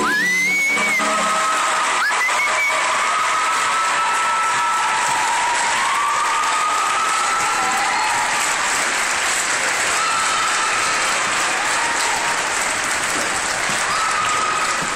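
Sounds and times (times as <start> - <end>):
short high held tones: 0.0 - 1.4
audience applauding: 0.0 - 14.9.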